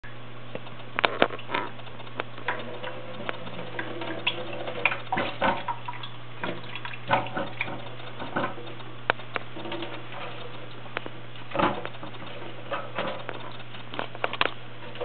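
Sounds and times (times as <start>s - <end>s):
steady low hum: 0.0s - 15.0s
cat splashing water: 2.4s - 8.8s.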